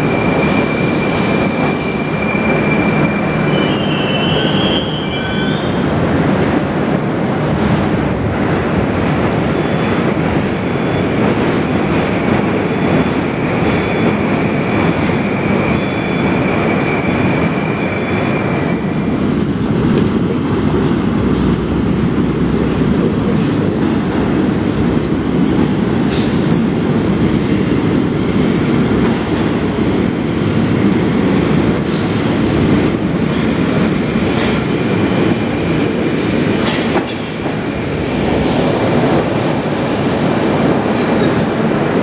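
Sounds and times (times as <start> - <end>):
wheel squeal: 0.0 - 8.2, 9.4 - 19.2
subway train rumbling: 0.0 - 42.0.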